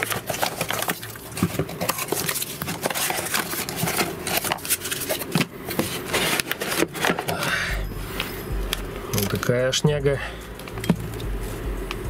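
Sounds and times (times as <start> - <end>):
cardboard rustling and scraping: 0.0 - 8.4.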